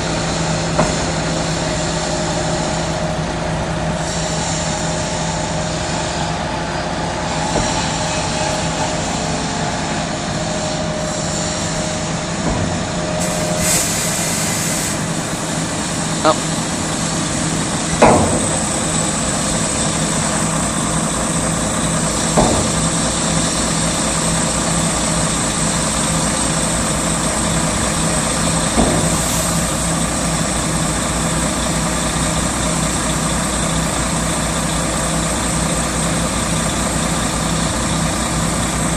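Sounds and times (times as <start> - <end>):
diesel truck engine idling: 0.0 - 38.9
short clunks: 0.7 - 1.6, 7.3 - 8.9, 11.1 - 14.0, 15.8 - 21.0, 21.6 - 23.6, 27.4 - 30.0.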